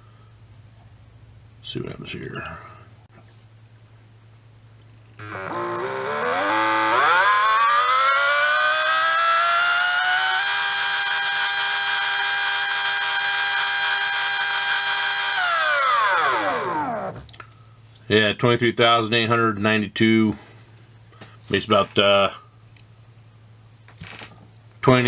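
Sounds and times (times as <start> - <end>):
electric motor whine: 5.2 - 17.3.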